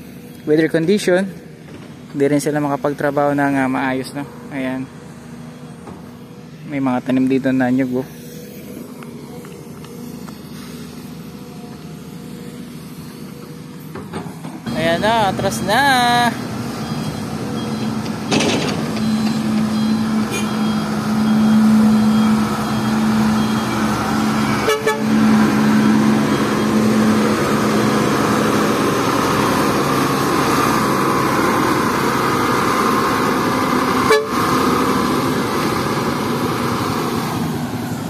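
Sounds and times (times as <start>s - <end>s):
diesel truck engine running: 0.0s - 38.0s
low horn-like tone: 24.4s - 25.9s, 34.0s - 34.4s.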